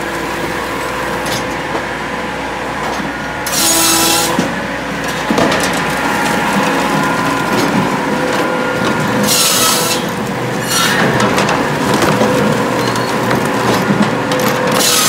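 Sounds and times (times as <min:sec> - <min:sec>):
firewood processor machine din: 0:00.0 - 0:15.0
circle saw cutting log: 0:03.4 - 0:04.7, 0:05.7 - 0:12.0, 0:14.7 - 0:15.0.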